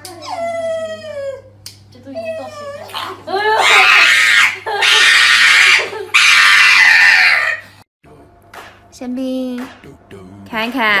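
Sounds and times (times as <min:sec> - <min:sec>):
dog screaming cries: 0:02.4 - 0:07.7.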